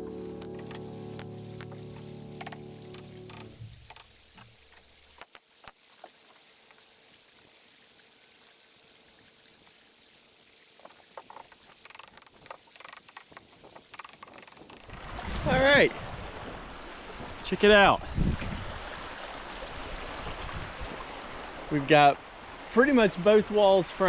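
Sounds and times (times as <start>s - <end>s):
creek water running over rocks: 0.0s - 24.0s
clicks and knocks: 2.4s - 5.4s, 11.2s - 15.0s.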